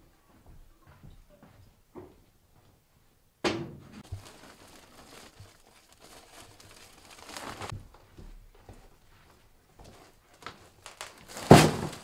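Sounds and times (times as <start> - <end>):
plastic sacks rustling: 4.0 - 7.8, 9.6 - 12.0.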